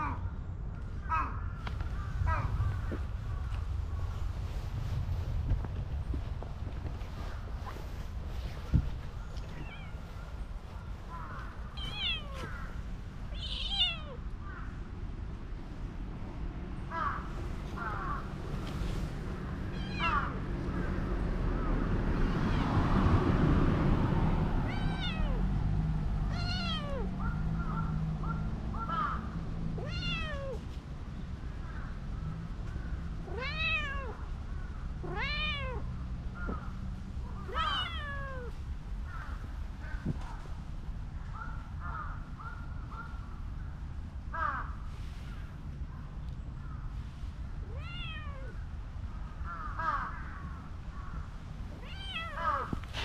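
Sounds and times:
cat meowing: 9.5 - 10.1, 11.8 - 12.7, 13.3 - 14.2, 24.7 - 25.4, 26.3 - 27.1, 29.8 - 30.6, 33.2 - 34.2, 35.0 - 35.9, 37.4 - 38.6, 47.6 - 48.6, 51.8 - 52.8.

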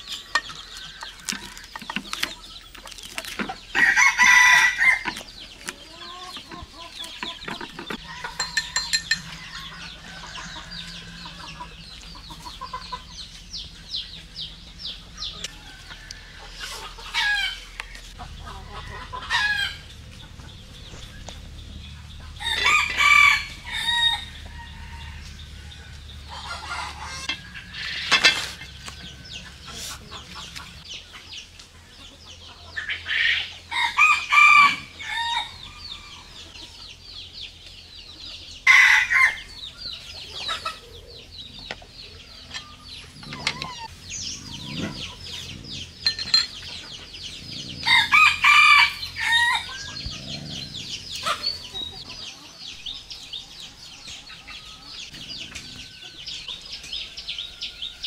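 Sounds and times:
chickens clucking: 0.0 - 58.0
rooster crowing: 3.8 - 5.0, 22.3 - 28.0, 33.7 - 36.4, 38.6 - 39.6, 47.6 - 51.4.

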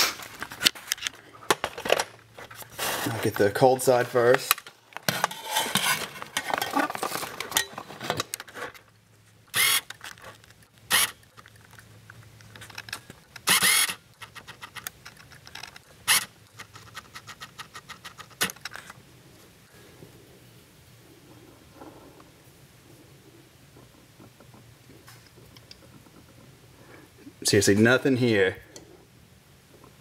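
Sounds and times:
rustling and light clatter: 21.1 - 27.0.

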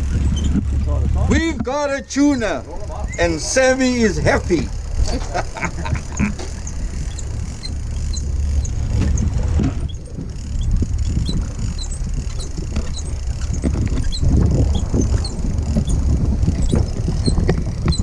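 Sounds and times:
light clicks and squeaks: 0.0 - 1.0, 5.1 - 18.0
wind and sea rumble: 0.0 - 18.0.

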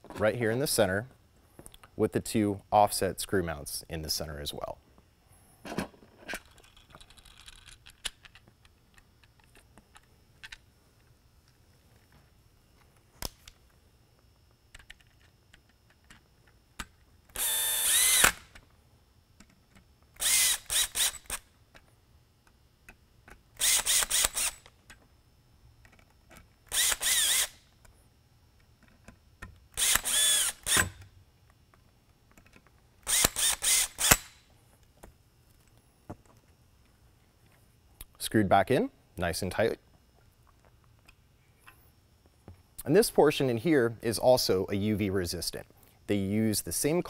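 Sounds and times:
cordless drill running in bursts: 17.3 - 18.4, 20.2 - 21.4, 23.6 - 24.7, 26.7 - 27.6, 29.8 - 30.9, 33.0 - 34.3.

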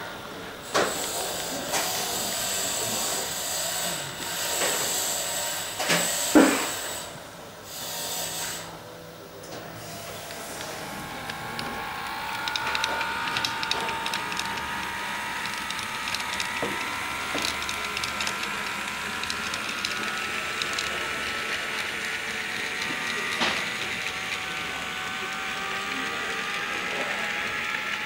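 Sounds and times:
model train motor whine: 0.0 - 28.0
wheels clicking over rail joints: 9.4 - 28.0.

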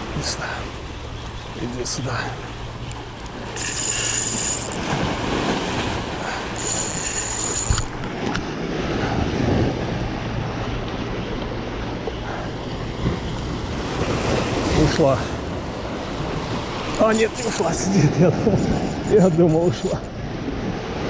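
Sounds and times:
high even whir: 2.8 - 5.1, 5.8 - 8.4
waves washing against rocks: 3.3 - 10.4.

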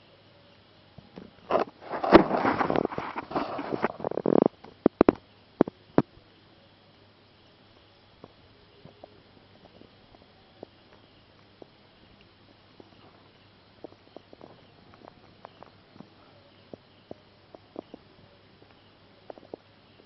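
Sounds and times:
rubbing against microphone: 1.4 - 5.1.

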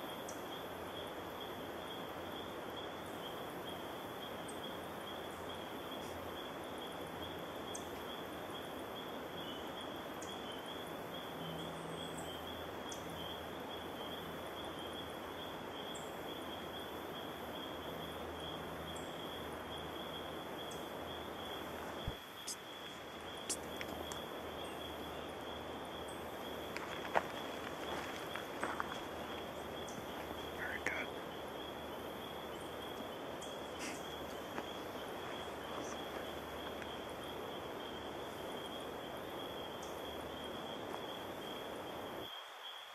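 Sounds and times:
background hiss: 0.0 - 42.9
high-pitched insect trill: 0.0 - 42.9.

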